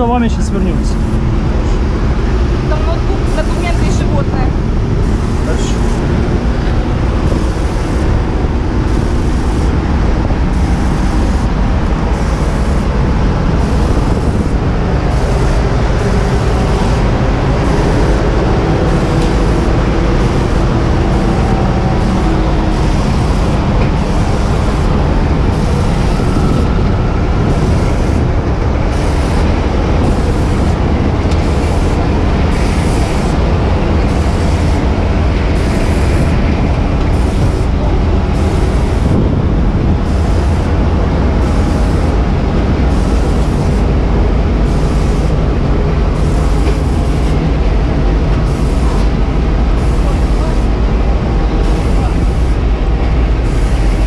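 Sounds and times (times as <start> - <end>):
fire truck engine running: 0.0 - 54.0.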